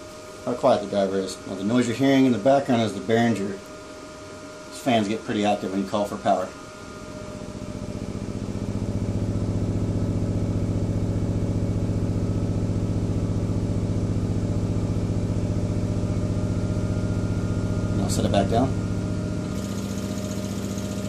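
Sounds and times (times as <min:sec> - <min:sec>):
cooling fans running: 0:00.0 - 0:21.0
subwoofer low hum with flutter: 0:07.0 - 0:21.0.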